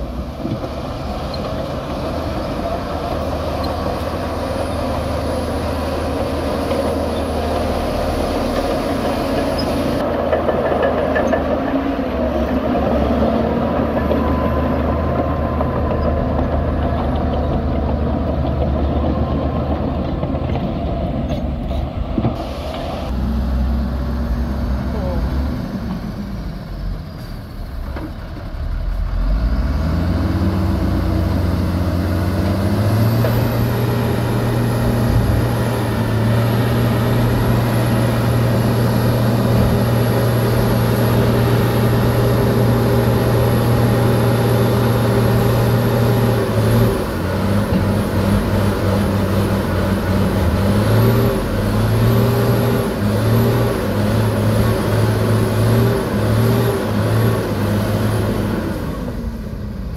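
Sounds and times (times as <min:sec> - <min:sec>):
diesel truck engine revving: 0:00.0 - 0:10.4, 0:28.5 - 0:59.9.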